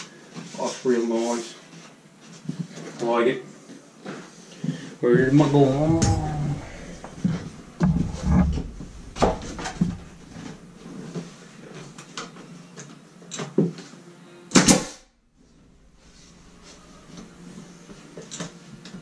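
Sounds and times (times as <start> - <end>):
handling knocks: 5.1 - 10.7
nail gun firing into wood: 14.5 - 15.0.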